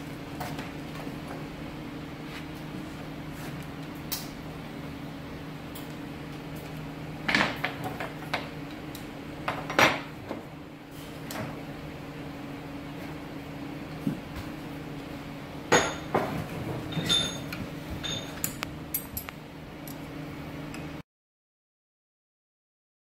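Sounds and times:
steady low hum: 0.0s - 21.0s
tools clinking on steel frame: 16.9s - 19.3s.

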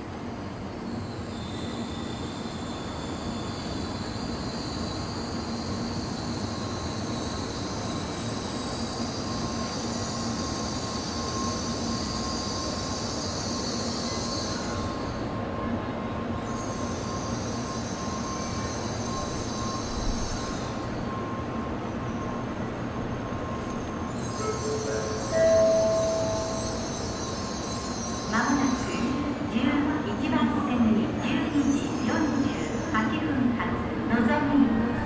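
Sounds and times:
train equipment low hum: 14.0s - 35.0s
high-pitched whines: 23.4s - 28.8s.

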